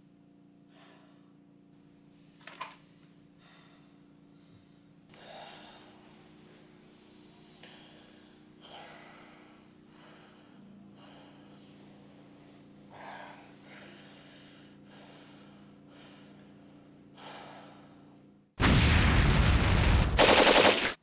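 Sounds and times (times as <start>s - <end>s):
steady low hum: 0.0s - 21.0s
person breathing heavily: 0.7s - 1.4s, 3.3s - 18.2s.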